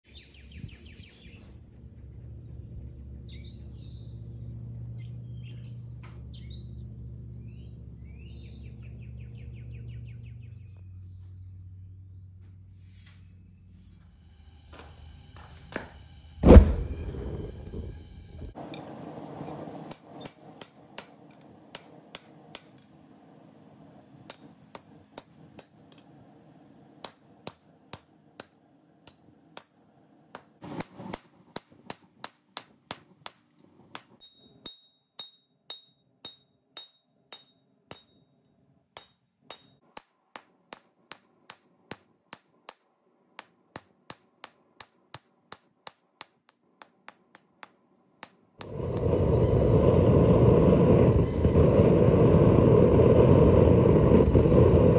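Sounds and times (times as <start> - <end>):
forge roaring: 16.4 - 19.4, 48.7 - 54.9
hammer striking metal on anvil: 18.7 - 23.2, 24.3 - 26.1, 27.0 - 38.3, 39.0 - 49.2.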